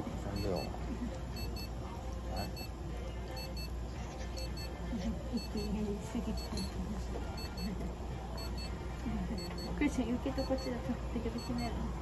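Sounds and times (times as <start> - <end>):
electronic alarm beeping: 0.3 - 0.7, 1.4 - 1.7, 3.4 - 3.7, 4.4 - 4.7, 8.4 - 8.8, 9.4 - 9.8, 10.4 - 11.8.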